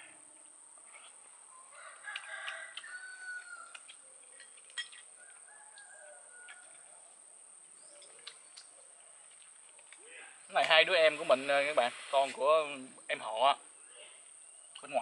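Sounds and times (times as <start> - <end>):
rooster crowing: 1.5 - 3.9, 5.1 - 7.3.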